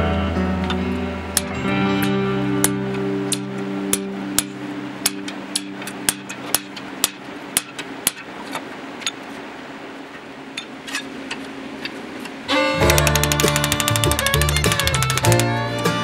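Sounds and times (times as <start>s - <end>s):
hammer striking chisel on steel: 2.6s - 8.3s, 12.8s - 15.5s.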